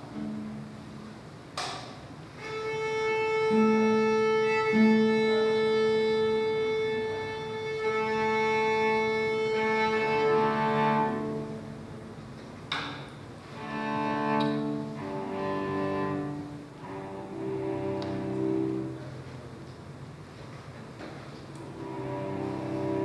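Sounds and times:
long held violin note: 0:02.4 - 0:11.8, 0:13.6 - 0:19.2, 0:21.7 - 0:23.0.

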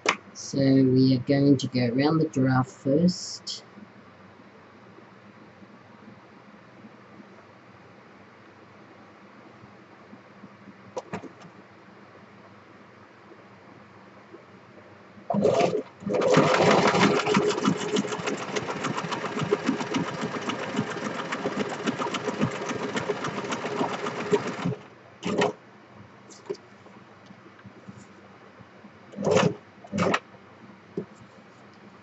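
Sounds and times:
sewing machine stitching: 0:15.3 - 0:25.6, 0:29.1 - 0:30.2.

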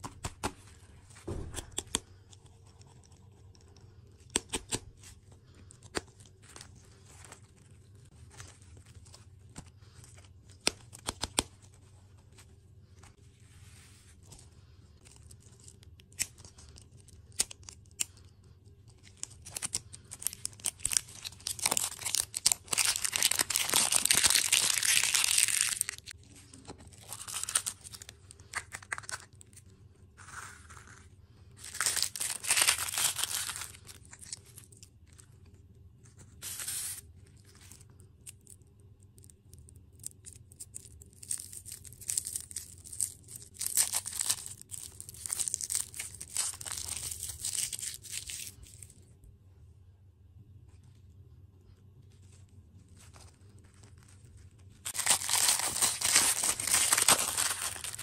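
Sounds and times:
plastic wrapping tearing and crinkling: 0:19.0 - 0:29.6, 0:31.6 - 0:34.9, 0:40.0 - 0:48.9, 0:53.0 - 0:58.0.

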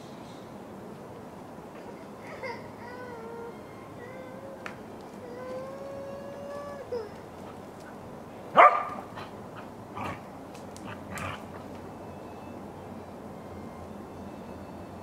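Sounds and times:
dog barking: 0:08.5 - 0:09.3.

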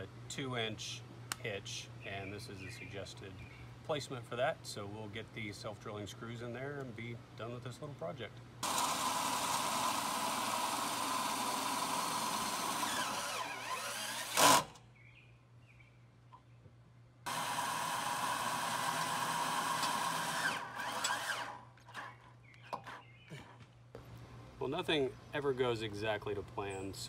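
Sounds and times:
cordless drill driving screw: 0:08.6 - 0:14.8, 0:17.3 - 0:21.6.

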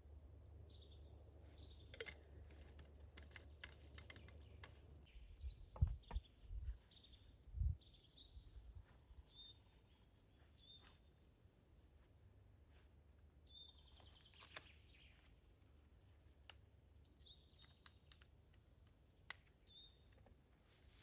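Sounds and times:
small bird chirping: 0:00.2 - 0:11.1, 0:13.4 - 0:15.3, 0:17.0 - 0:18.3, 0:19.3 - 0:20.2.

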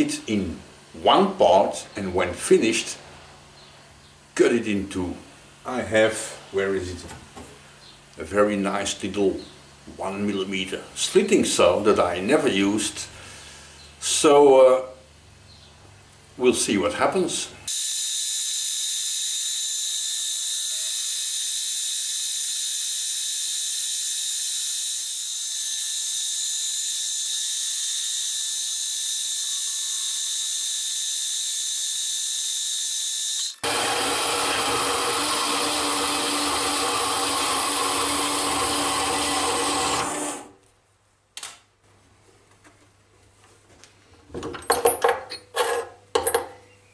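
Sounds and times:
milling machine cutting whine: 0:17.7 - 0:39.5.

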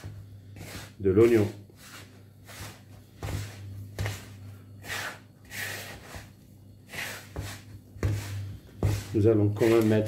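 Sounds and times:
hands rubbing semolina in bowl: 0:06.9 - 0:10.0.

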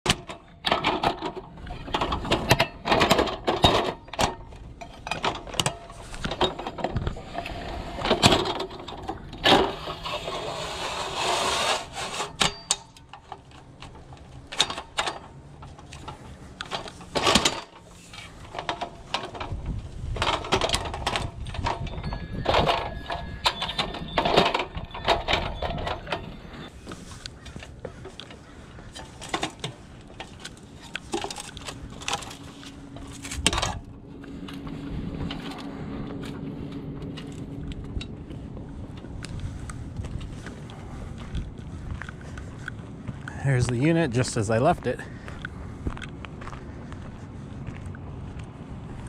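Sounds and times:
metal ladder clanking and rattling: 0:00.0 - 0:33.9.

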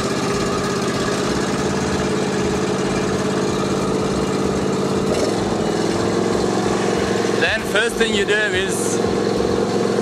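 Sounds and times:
mower engine idling: 0:00.0 - 0:10.0.

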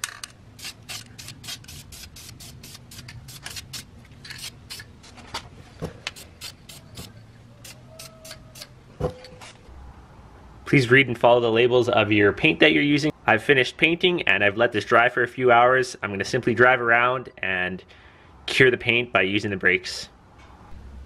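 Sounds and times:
aerosol can spraying in bursts: 0:00.6 - 0:04.8.

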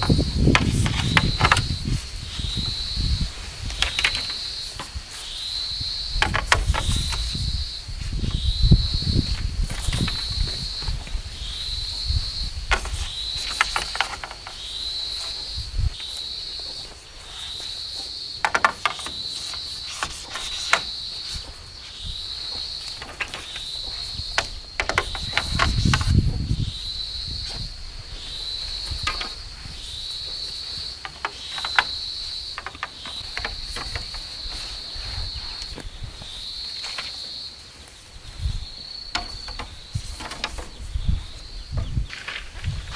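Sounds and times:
bamboo poles clicking and knocking: 0:00.0 - 0:02.7, 0:03.4 - 0:05.3, 0:06.1 - 0:07.6, 0:09.2 - 0:11.2, 0:12.5 - 0:21.6, 0:22.4 - 0:26.5, 0:28.7 - 0:35.9, 0:36.6 - 0:38.0, 0:39.0 - 0:42.9
insect buzzing call: 0:00.0 - 0:42.9.

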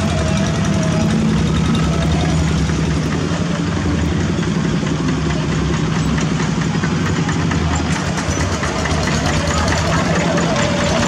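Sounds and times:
diesel tractor engines chugging: 0:00.0 - 0:11.0.

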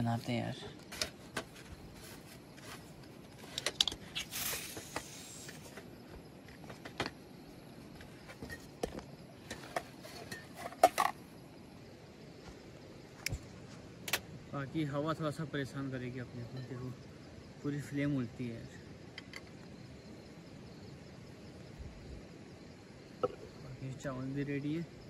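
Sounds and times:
stove hiss: 0:00.3 - 0:06.2
camp cooking gear clicking: 0:00.8 - 0:01.7, 0:03.0 - 0:05.6, 0:08.4 - 0:11.2, 0:19.1 - 0:19.7.

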